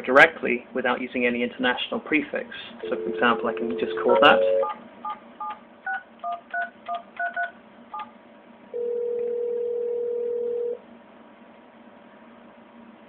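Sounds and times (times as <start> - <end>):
phone ringback tone: 2.8 - 4.8, 8.8 - 10.8
touch-tone keypad beeps: 5.4 - 8.1.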